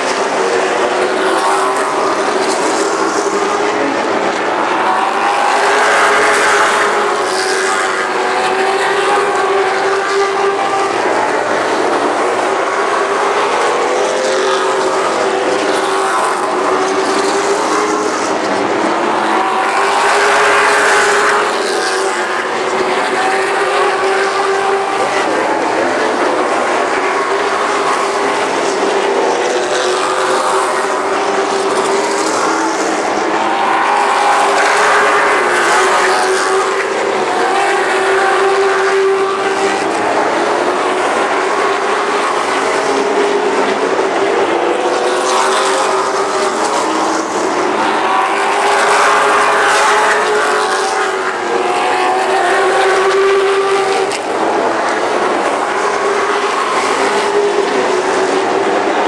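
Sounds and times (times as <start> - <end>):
race car engines roaring: 0.0 - 59.0.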